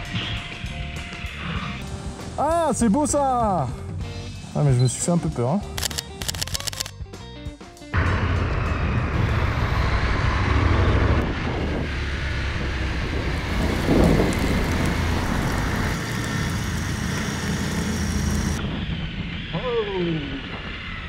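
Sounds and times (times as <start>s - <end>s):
motorcycle engine running: 8.0s - 18.6s
dense rushing noise: 8.0s - 21.0s.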